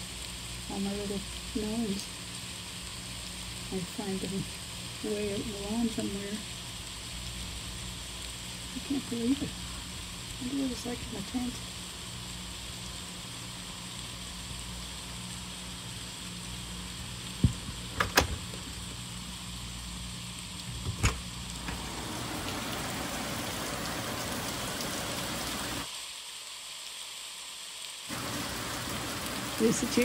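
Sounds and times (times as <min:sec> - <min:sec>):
heavy rain on roof: 0:20.5 - 0:30.0.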